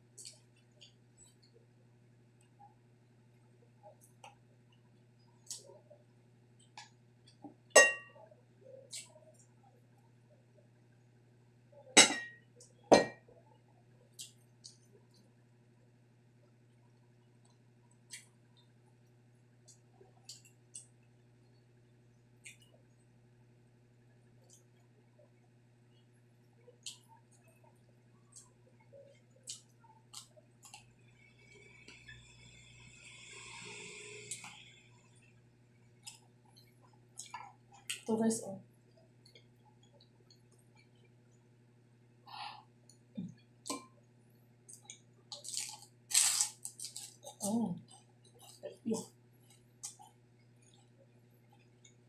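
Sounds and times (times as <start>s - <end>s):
low steady hum: 0.0s - 52.0s
crunchy food being chewed: 44.7s - 52.0s.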